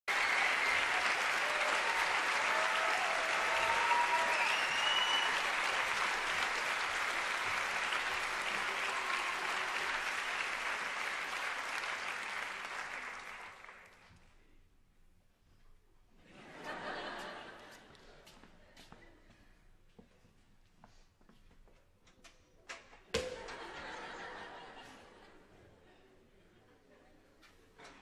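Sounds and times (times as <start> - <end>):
audience applauding: 0.0 - 14.1
short cheers: 0.1 - 5.8, 8.4 - 10.1.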